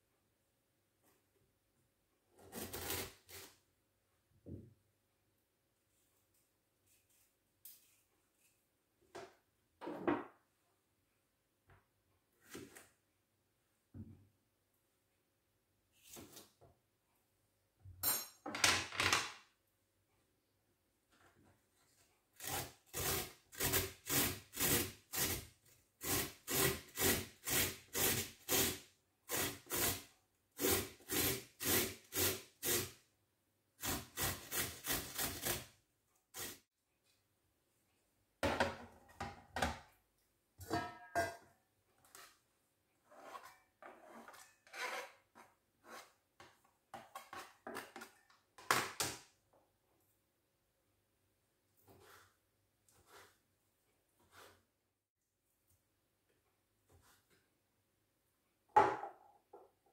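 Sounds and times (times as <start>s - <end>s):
box grater shredding pumpkin: 2.4s - 3.5s, 22.4s - 33.0s, 33.8s - 36.6s
scrapes and knocks: 40.6s - 42.4s, 43.0s - 48.3s.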